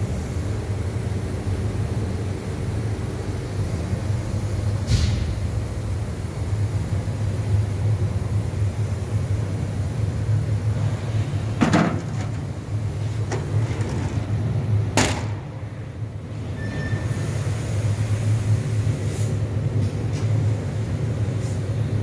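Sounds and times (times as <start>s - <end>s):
machine knocks: 11.6s - 12.6s, 13.2s - 15.6s.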